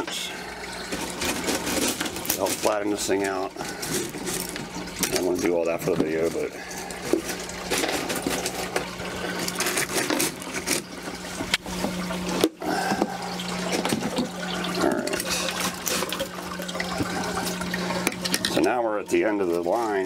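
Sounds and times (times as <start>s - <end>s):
tubing being handled: 0.0s - 20.0s
water sloshing and trickling: 0.0s - 20.0s.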